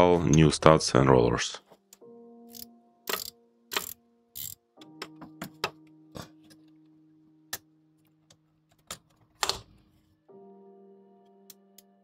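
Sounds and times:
soft background music: 0.0 - 12.0
metal tools clicking and clinking: 2.5 - 5.7.

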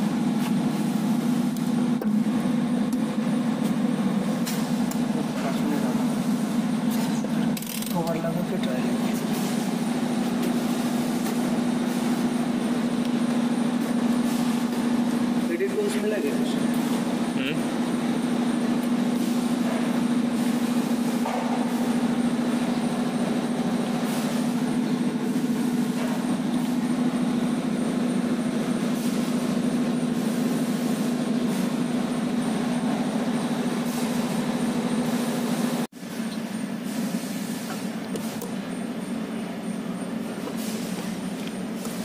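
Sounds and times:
machine hum with low drone: 0.0 - 42.0.

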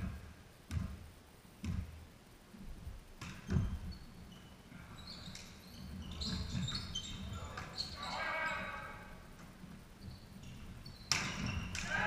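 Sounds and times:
ball bouncing on wooden floor: 0.0 - 1.0, 1.6 - 2.0, 3.2 - 4.0, 10.4 - 11.9
sports shoes squeaking: 3.2 - 12.0.

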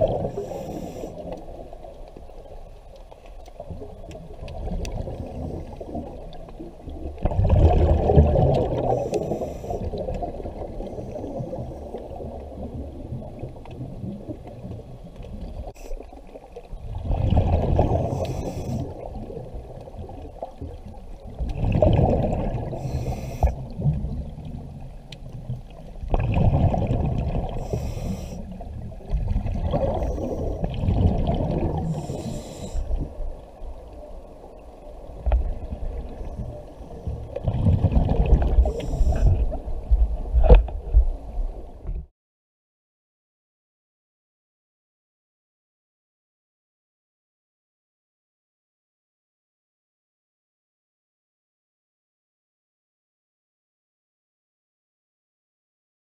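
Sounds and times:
exhaled bubbles gurgling: 0.0 - 42.0
water noise: 0.0 - 42.1.

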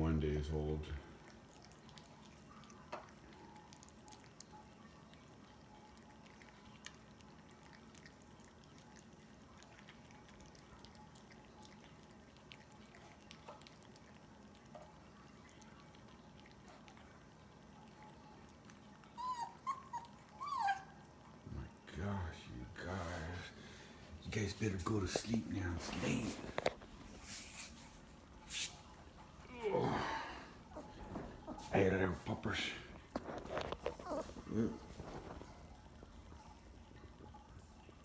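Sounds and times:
puppy chewing food: 0.2 - 29.7, 30.4 - 38.0
puppy whining: 17.8 - 21.6, 29.4 - 32.0, 33.1 - 36.8.

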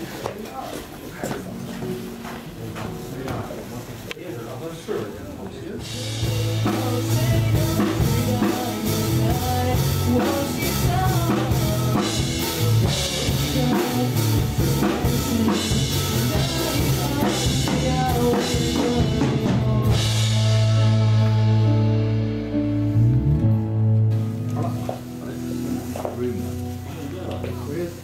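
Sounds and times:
man singing into microphone: 5.8 - 21.0
drum kit beat: 5.8 - 22.6
band playing: 5.8 - 28.0.

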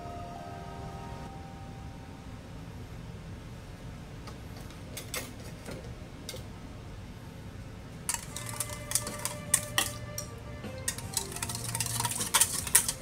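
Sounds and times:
metal bowls clinking and scraping: 8.1 - 13.0.

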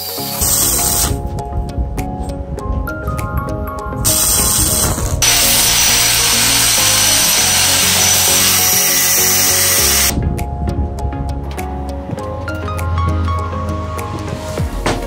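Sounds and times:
power tool running: 0.0 - 1.2, 4.1 - 10.2
background music: 0.0 - 15.0.

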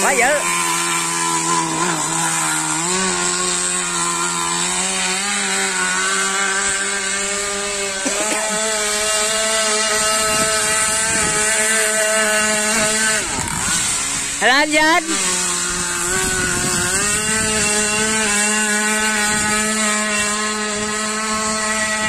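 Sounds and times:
model speedboat engine buzzing: 0.0 - 22.0.

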